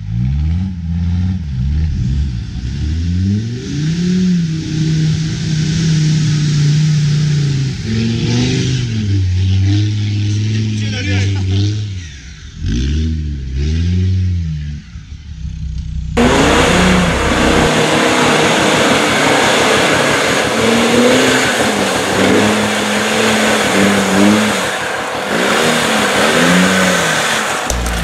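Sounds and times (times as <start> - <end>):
engine revving: 0.0 - 28.0
heavy rushing noise: 1.8 - 9.3, 16.2 - 28.0.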